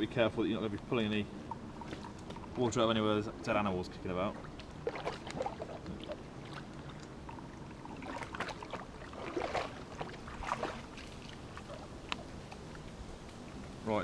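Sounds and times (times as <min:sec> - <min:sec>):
water squirting into container: 0:04.8 - 0:11.8.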